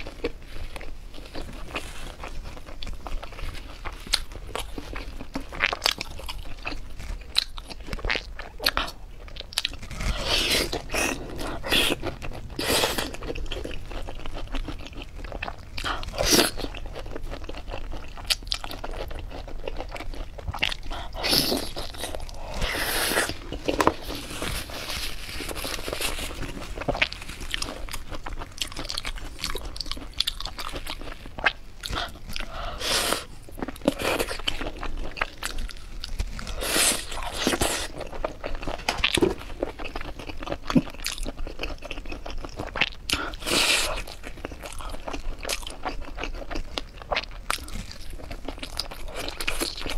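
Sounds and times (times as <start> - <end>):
crunchy bites and chewing: 0.0 - 49.9.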